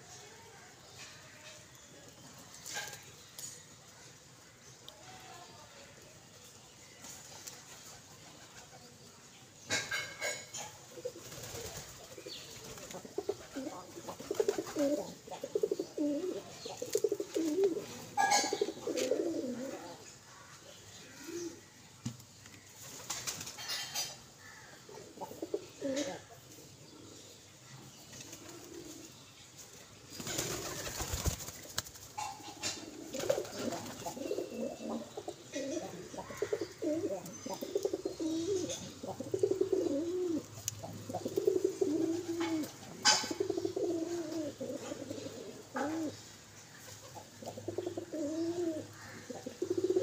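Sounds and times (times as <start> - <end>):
pigeons cooing: 9.7 - 20.1, 21.1 - 21.7, 23.6 - 27.4, 28.2 - 29.2, 32.0 - 50.0
wings flapping: 11.2 - 15.0, 22.8 - 23.6, 30.2 - 32.2.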